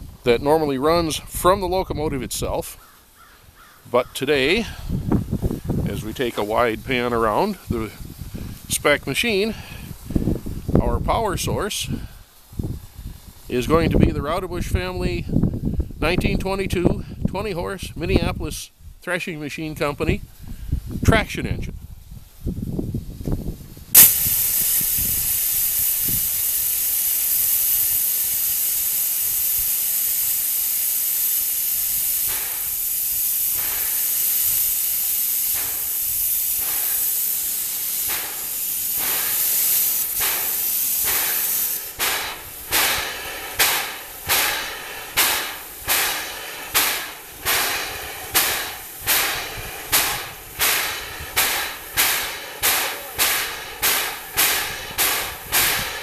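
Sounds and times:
rhythmic chuff of steam exhaust: 0:04.2 - 0:21.3, 0:23.8 - 0:56.0
steam hissing loudly: 0:04.4 - 0:14.7, 0:23.9 - 0:56.0.

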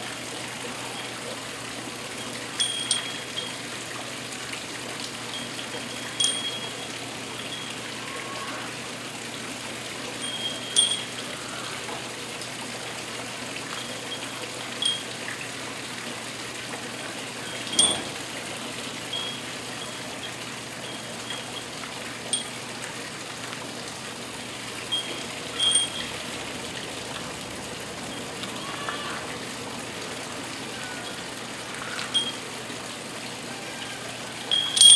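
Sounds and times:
waterfall splashing into pond: 0:00.0 - 0:34.9
metal rings clinking: 0:02.5 - 0:03.6, 0:05.3 - 0:07.8, 0:10.1 - 0:11.3, 0:13.7 - 0:15.1, 0:17.6 - 0:18.2, 0:19.1 - 0:21.7, 0:22.3 - 0:22.6, 0:24.9 - 0:26.3, 0:32.0 - 0:32.4, 0:34.5 - 0:34.9.

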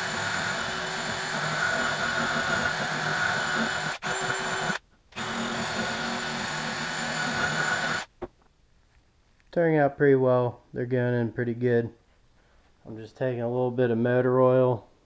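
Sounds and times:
drill spinning wire wheel brush: 0:00.0 - 0:08.1.

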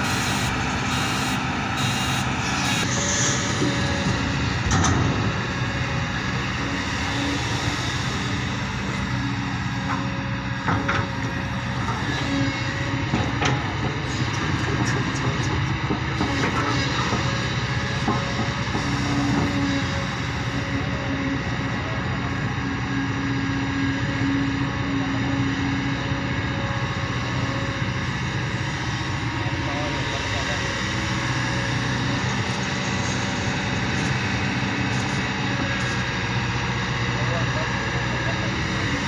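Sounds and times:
mechanical whine: 0:00.0 - 0:20.7
excavator diesel engine running: 0:00.0 - 0:39.0.

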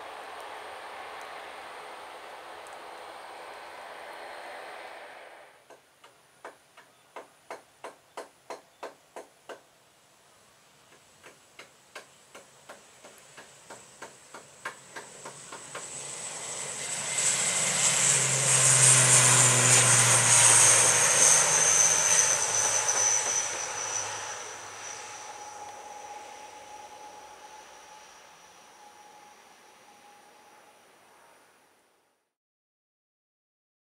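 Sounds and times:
turboprop aircraft taking off: 0:00.0 - 0:05.6, 0:12.4 - 0:31.5.

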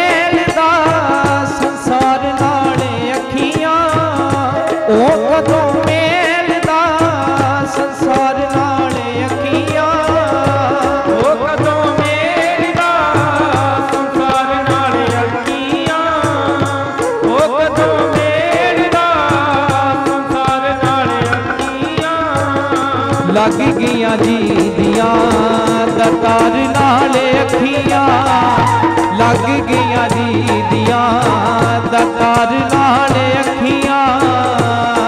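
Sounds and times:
harmonium melody: 0:00.0 - 0:35.0
tabla rhythm: 0:00.0 - 0:35.0
chimta jingling strikes: 0:20.5 - 0:28.5.

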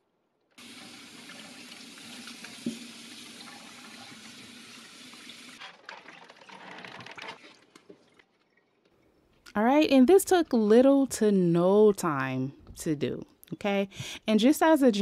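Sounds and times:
faucet sprayer running water: 0:00.6 - 0:05.6.

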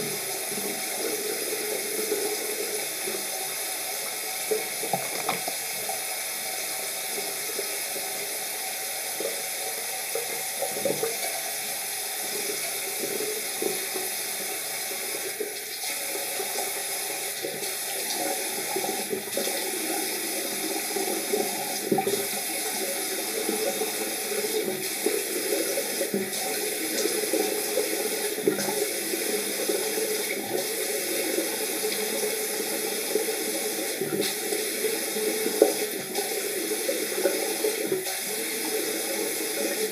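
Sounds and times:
tap running into sink: 0:00.0 - 0:06.1, 0:09.2 - 0:39.9
water splashing by hand: 0:04.4 - 0:06.1.

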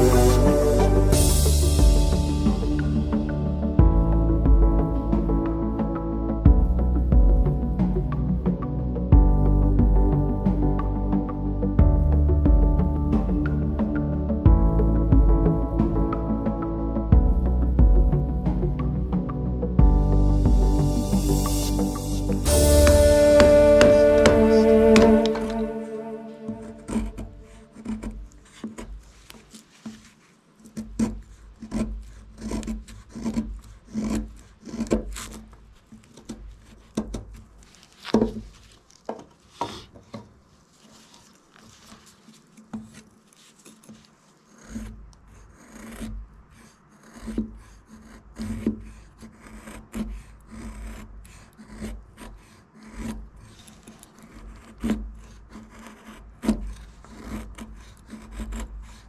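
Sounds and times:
knife blade scraping wood: 0:20.3 - 0:59.0.

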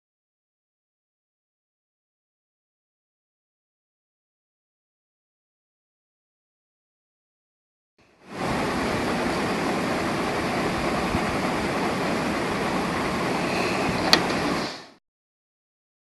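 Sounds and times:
loud recording hiss: 0:08.0 - 0:15.0.

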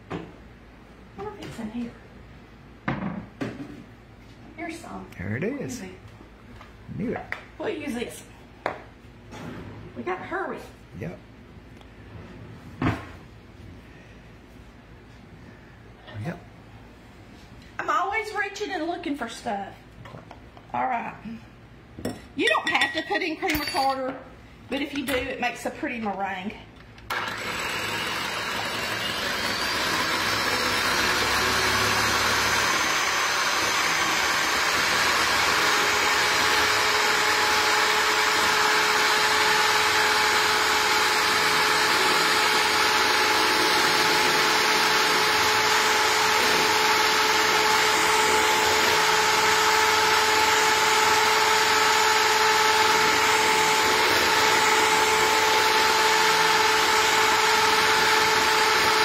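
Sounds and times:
electric hand mixer whipping: 0:27.1 - 0:59.0.

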